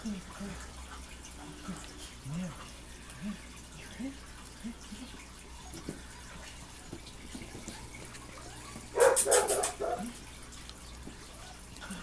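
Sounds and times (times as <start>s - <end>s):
puppy barking: 8.9s - 10.2s.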